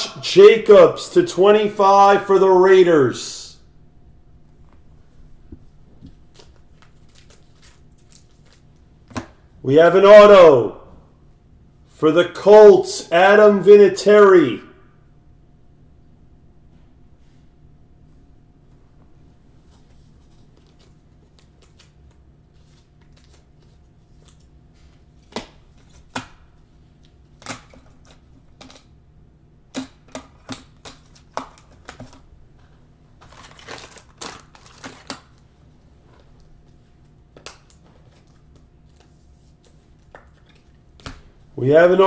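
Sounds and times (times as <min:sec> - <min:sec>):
packaging rustling: 0:06.0 - 0:08.8, 0:33.2 - 0:35.4.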